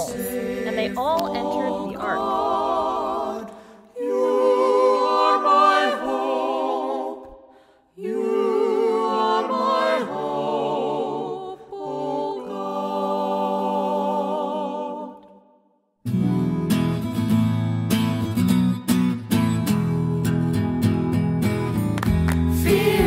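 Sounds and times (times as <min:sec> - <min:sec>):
voices singing a cappella: 0:00.0 - 0:15.6, 0:22.5 - 0:23.0.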